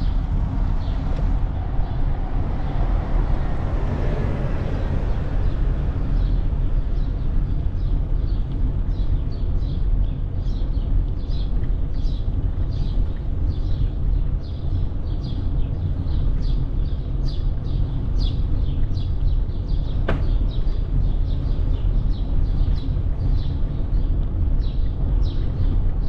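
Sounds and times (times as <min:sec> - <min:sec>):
vehicle passing: 0:00.0 - 0:07.0
wind and road rumble: 0:00.0 - 0:26.0.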